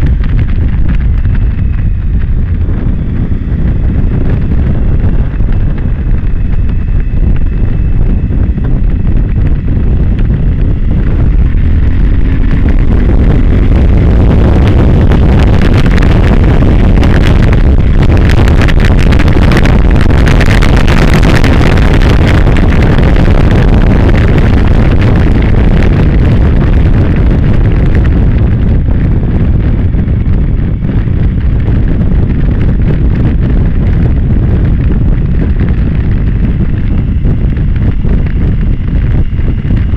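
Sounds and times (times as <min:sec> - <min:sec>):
motorcycle engine running: 0:00.0 - 0:39.9
wind roar on microphone: 0:00.0 - 0:39.9.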